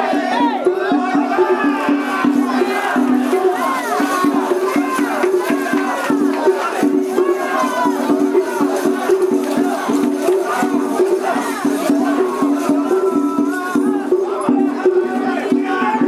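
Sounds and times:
children chanting and shouting: 0.0s - 16.0s
festival music with rhythm: 0.0s - 16.0s.

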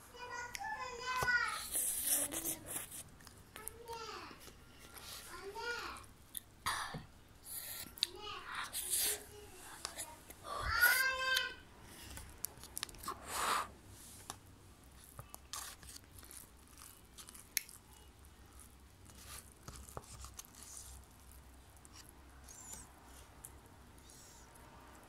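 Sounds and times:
child chewing noodles: 1.4s - 3.8s, 7.4s - 11.0s, 11.8s - 13.8s, 14.9s - 23.6s.

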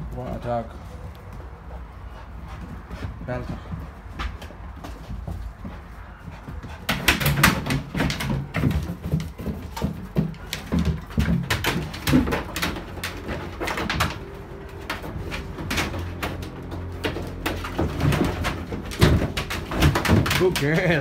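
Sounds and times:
plastic jerry cans clattering: 7.0s - 21.0s.

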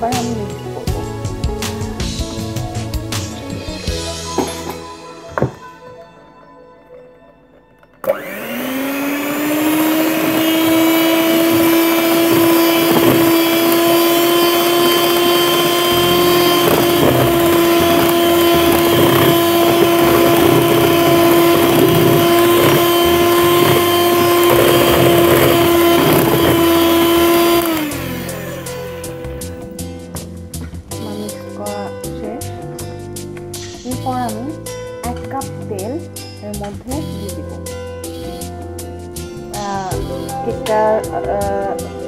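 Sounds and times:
electric hand mixer whine: 8.0s - 29.9s, 39.9s - 42.0s.

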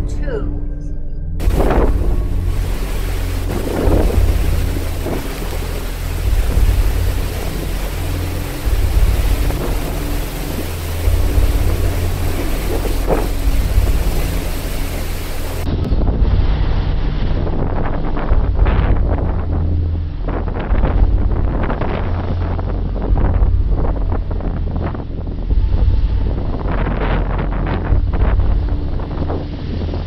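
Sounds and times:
rush of heavy seas: 1.4s - 19.6s
wind buffeting microphone: 1.4s - 30.0s.

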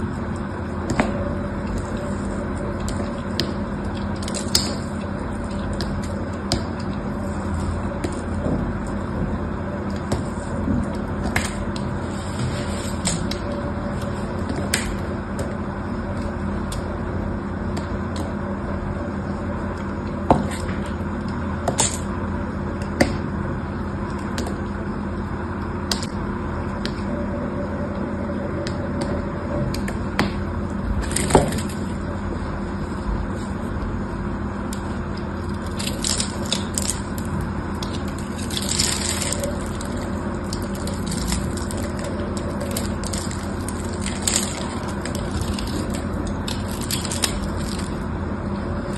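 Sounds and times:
steady low hum: 0.0s - 48.9s
soap cubes crumbling: 35.5s - 48.1s.

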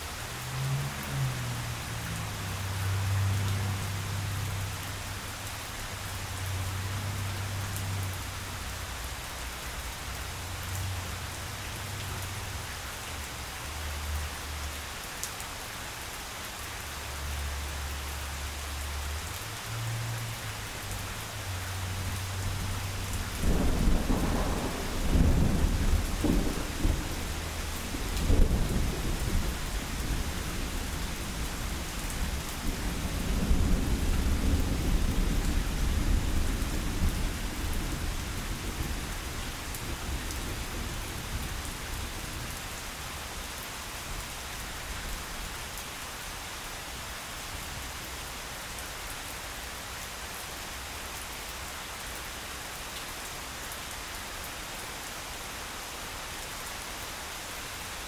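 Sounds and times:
steady rain falling: 0.0s - 58.0s
thunder rumbling: 23.3s - 41.4s.

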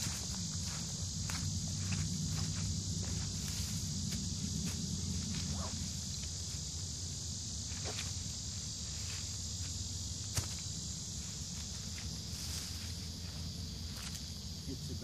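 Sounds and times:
footsteps on dry leaves: 0.0s - 6.7s
high insect drone: 0.0s - 15.0s.

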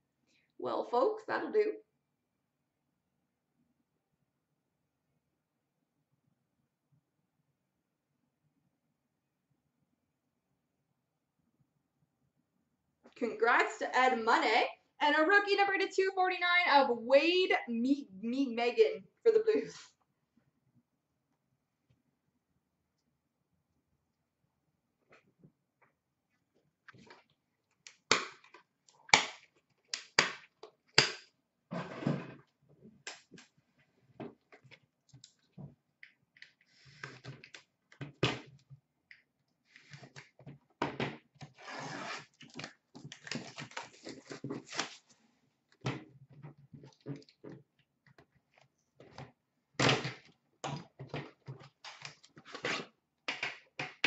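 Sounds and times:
packaging rustling and scraping: 41.5s - 45.2s.

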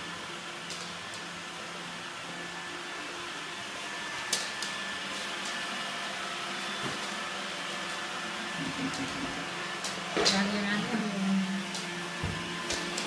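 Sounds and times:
robot vacuum cleaner whirring: 0.0s - 13.0s.

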